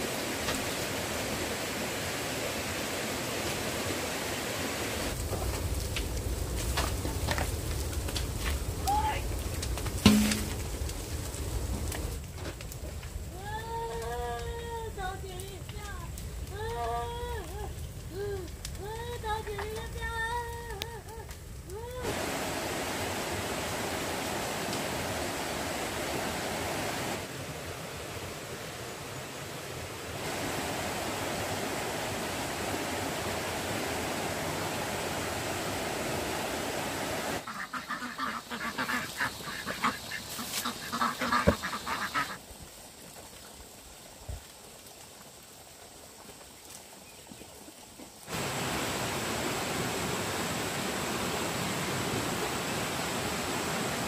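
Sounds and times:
steady rushing hiss: 0.0s - 54.0s
ducks quacking: 37.4s - 42.4s.

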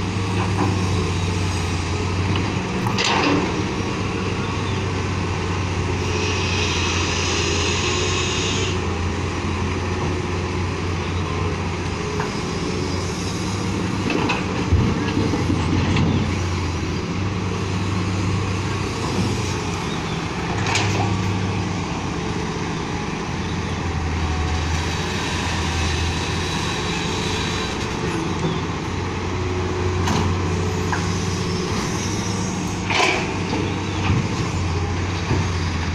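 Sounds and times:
excavator diesel engine running: 0.0s - 35.9s
hiss: 6.0s - 8.8s.

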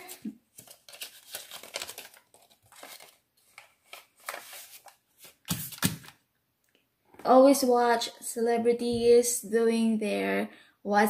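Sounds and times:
paper bill crinkling: 0.1s - 6.1s.

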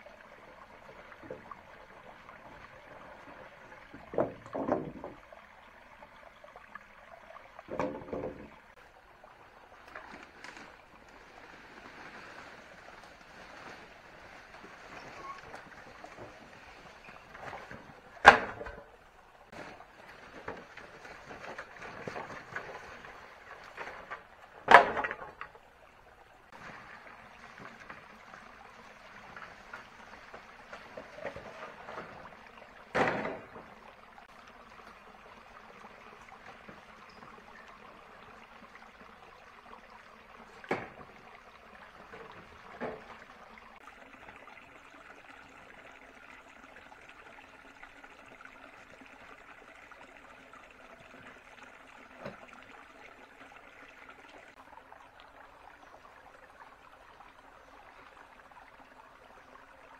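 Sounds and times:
running water trickling: 0.0s - 59.9s.

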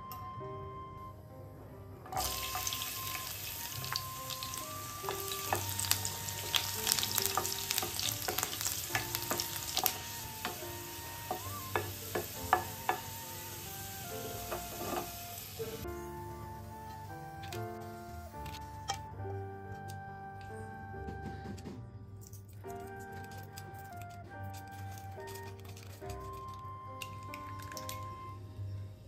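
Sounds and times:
utensil scraping in pan: 2.1s - 15.8s
food sizzling in hot oil: 2.2s - 15.9s.

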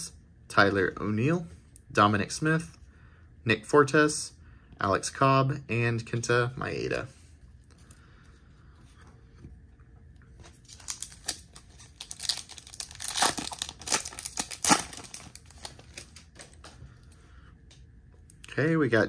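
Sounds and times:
wrapper tearing and crinkling: 10.6s - 16.7s.

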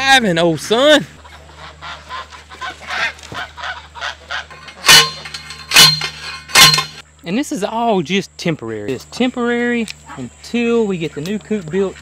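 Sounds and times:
geese honking: 0.0s - 5.8s
post driver clanging on metal: 4.5s - 7.0s.

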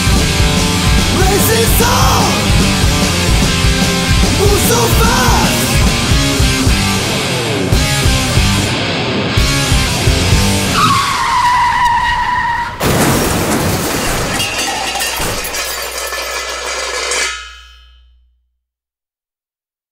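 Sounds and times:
heavy metal band playing: 0.0s - 10.8s
loud crash: 12.7s - 18.1s.

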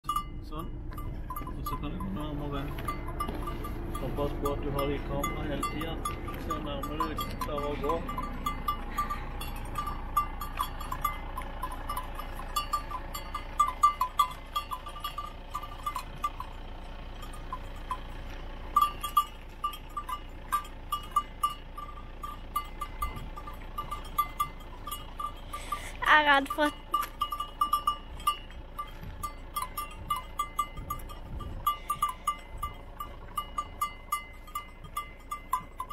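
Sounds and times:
small bell clinking: 0.0s - 35.9s.

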